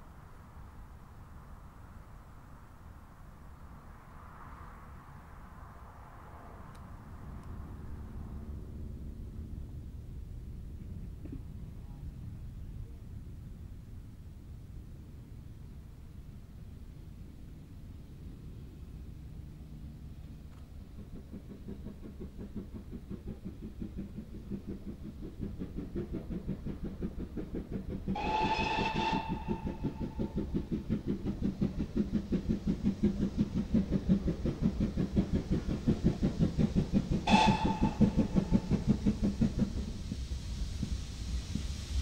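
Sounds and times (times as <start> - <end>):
steam locomotive exhaust beats: 0.0 - 42.0
steam locomotive whistle: 28.1 - 30.4, 37.2 - 38.7.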